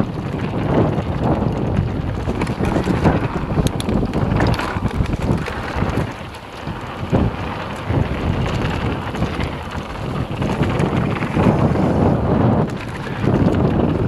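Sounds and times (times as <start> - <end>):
bike clicks and rattles: 0.0 - 14.0
tyres rumbling on dirt: 0.0 - 14.0
wind buffeting microphone: 0.0 - 14.0.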